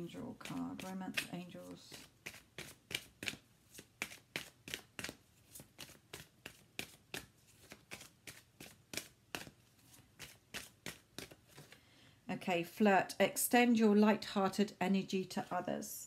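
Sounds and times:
cards being shuffled: 0.3 - 11.8.

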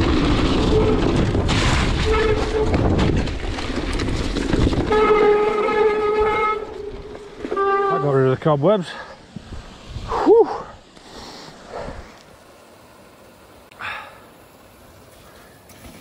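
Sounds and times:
bike tyres on wet gravel: 0.0 - 16.0
disc brakes honking: 4.9 - 8.4.

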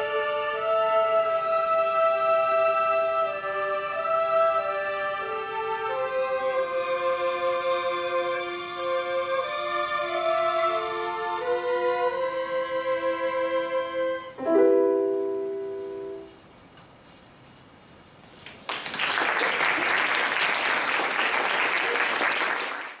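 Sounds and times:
orchestra final chord: 14.4 - 16.4
audience applauding: 18.5 - 23.0.

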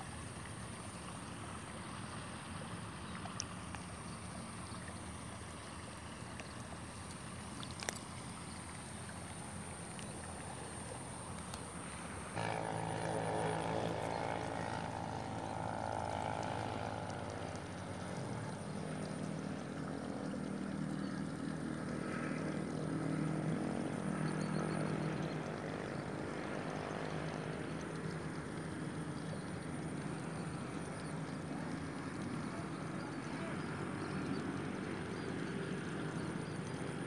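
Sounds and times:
faint outdoor background: 0.0 - 37.0
motor droning: 0.3 - 22.8.

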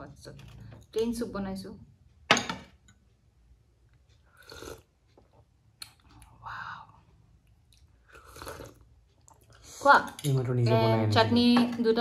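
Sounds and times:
chewing and mouth noise: 7.4 - 9.7.

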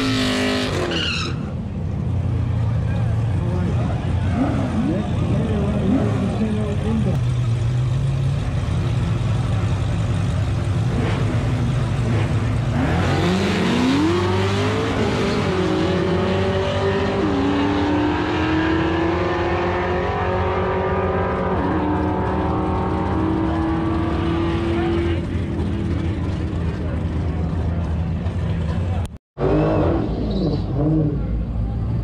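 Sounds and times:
car engine revving and upshifting: 10.8 - 27.0.

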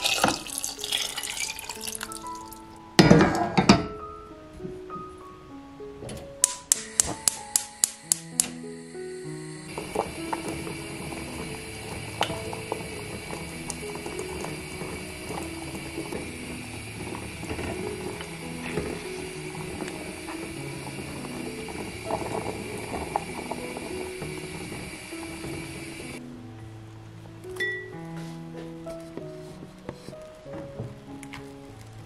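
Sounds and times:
water boiling in a pot: 0.0 - 3.8, 8.3 - 26.3
soft background music: 0.0 - 32.0.

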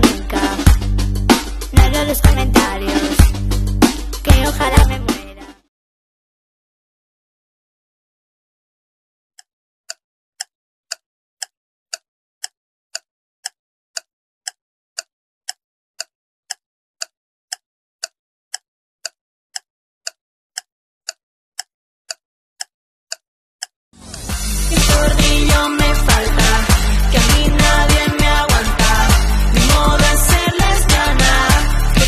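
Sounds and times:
clock ticking: 0.0 - 5.2, 9.4 - 32.0
music: 0.0 - 5.7, 24.0 - 32.0.

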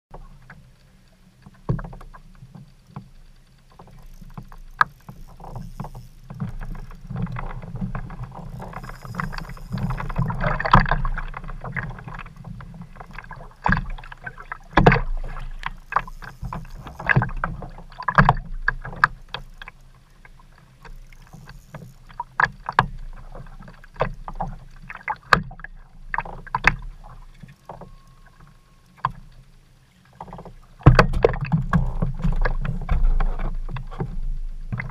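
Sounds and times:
knocks and clicks from boat: 0.1 - 34.9
water slapping against hull: 1.4 - 34.9
spinning reel being wound: 3.3 - 11.3, 14.6 - 17.8, 19.1 - 19.9, 20.8 - 22.2.

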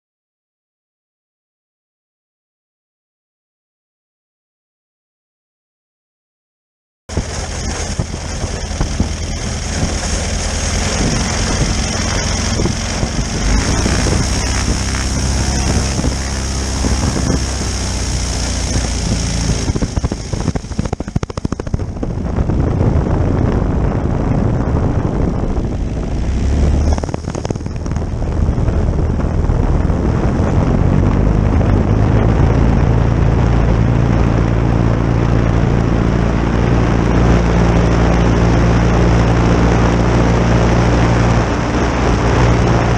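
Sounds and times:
skis moving over snow: 7.1 - 21.8
ultralight engine and propeller: 7.1 - 42.9
wind on microphone: 7.1 - 42.9
high hiss: 7.2 - 21.8.

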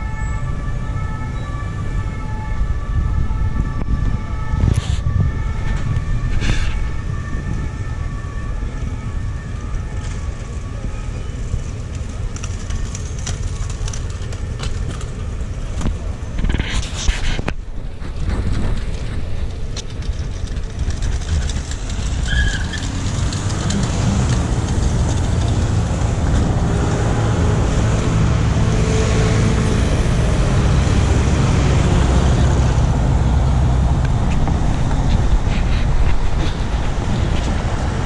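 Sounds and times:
low rumble of road traffic: 0.0 - 38.0.

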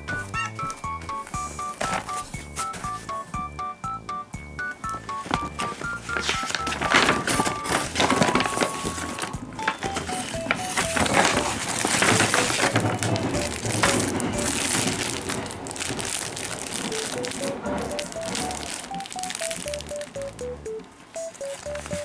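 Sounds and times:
light background music: 0.0 - 15.8, 16.6 - 22.0
paper and plastic crinkling: 0.1 - 3.3, 4.8 - 22.0.

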